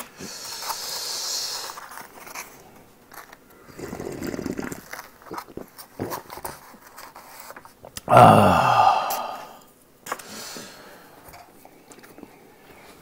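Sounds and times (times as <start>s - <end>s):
breathy hiss: 0.0s - 1.9s, 8.1s - 11.2s.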